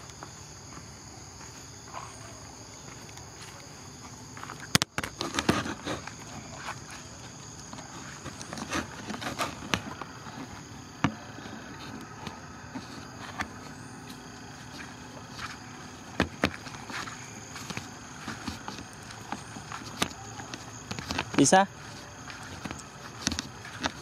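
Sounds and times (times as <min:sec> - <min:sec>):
footsteps on dirt path: 0:00.0 - 0:24.0
insects droning: 0:00.0 - 0:24.0.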